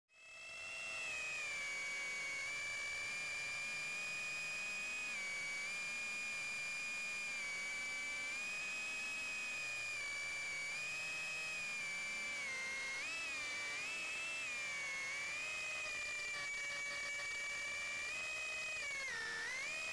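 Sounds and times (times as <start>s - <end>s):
small drone motors whining: 0.2s - 19.9s.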